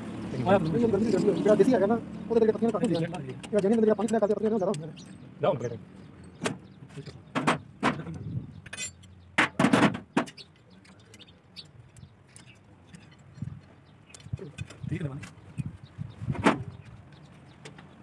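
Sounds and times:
spanners knocking on metal: 0:07.0 - 0:10.5.

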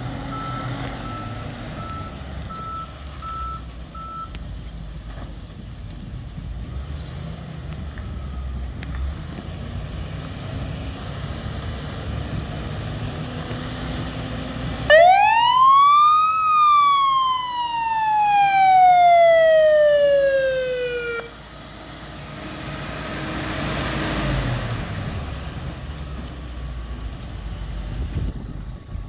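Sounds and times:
fire truck siren wailing: 0:14.3 - 0:23.9.

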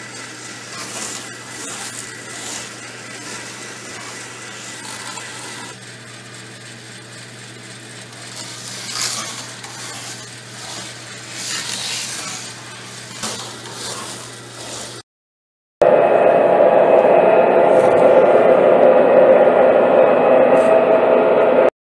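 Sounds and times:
model coaster trains rattling: 0:00.0 - 0:05.8, 0:08.0 - 0:15.0
low motor hum: 0:00.0 - 0:15.0, 0:15.8 - 0:21.7.

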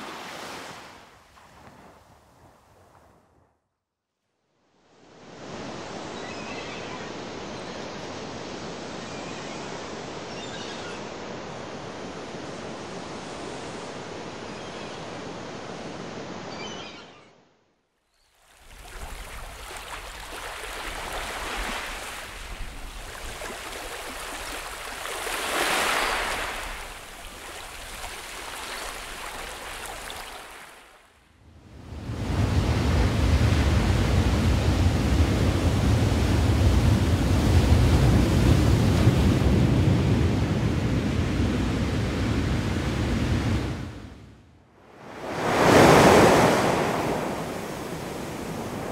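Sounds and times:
ocean waves and surf: 0:00.0 - 0:03.5, 0:04.8 - 0:17.2, 0:18.3 - 0:48.9
loud breaking wave: 0:45.1 - 0:48.9.

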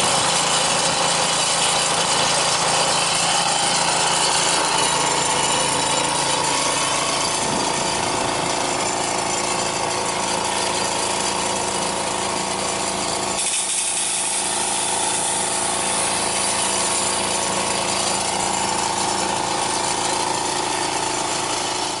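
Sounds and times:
water jetting from hose nozzle: 0:00.0 - 0:08.4, 0:10.4 - 0:21.4
small engine running at high throttle: 0:00.0 - 0:22.0.

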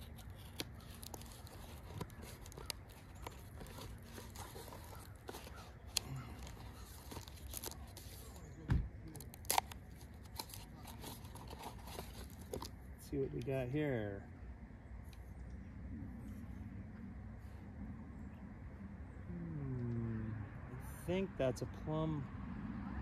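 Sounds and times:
paper crinkling and tearing: 0:00.0 - 0:12.7.

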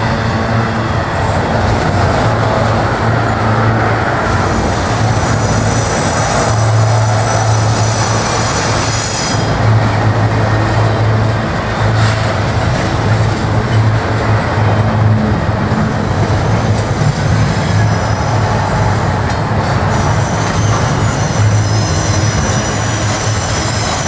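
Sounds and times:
train wheels rumbling on rails: 0:00.0 - 0:24.0
high-pitched wheel squeal: 0:19.6 - 0:24.0.

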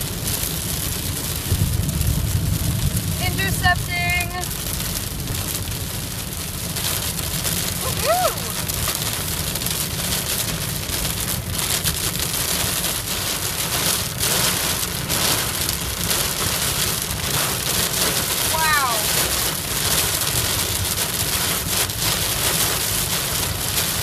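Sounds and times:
heavy rain drumming on car roof: 0:00.0 - 0:24.0
road rumble: 0:00.0 - 0:24.0.

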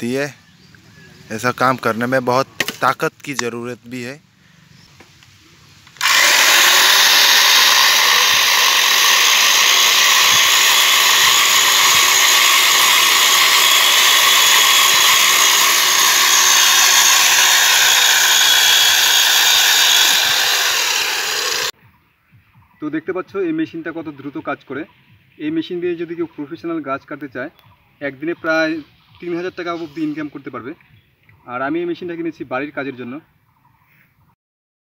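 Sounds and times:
electric chainsaw cutting log: 0:06.0 - 0:21.7.

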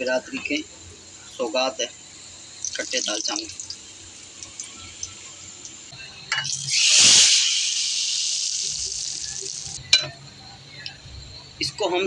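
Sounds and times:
faint frying hiss of oil: 0:00.0 - 0:12.0
hot oil sizzling in a pot: 0:00.7 - 0:10.1.

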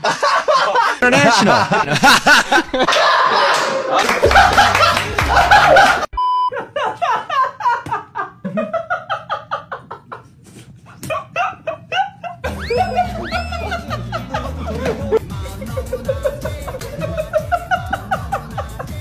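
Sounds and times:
men laughing: 0:00.0 - 0:19.0.

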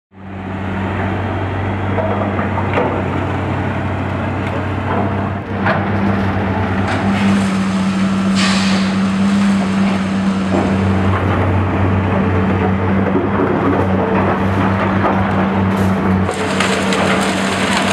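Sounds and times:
excavator diesel engines humming: 0:00.2 - 0:17.9
debris clanking and crashing: 0:04.9 - 0:17.9.

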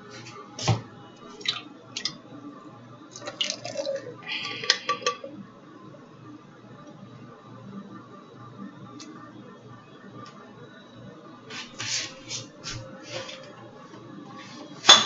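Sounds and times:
dripping liquid: 0:03.2 - 0:05.3
can and dishes knocking and clinking: 0:04.5 - 0:05.3.

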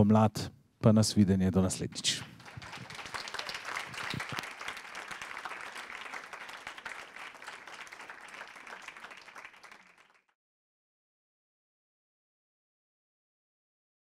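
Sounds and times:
audience applause: 0:02.1 - 0:10.3.

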